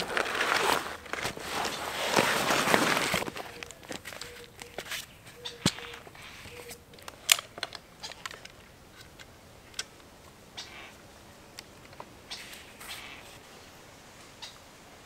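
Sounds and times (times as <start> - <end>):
tripod handling clicks: 4.1 - 10.1.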